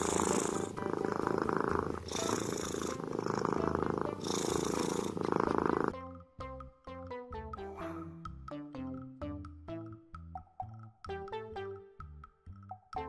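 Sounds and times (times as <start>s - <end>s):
kitten purring: 0.0s - 5.9s.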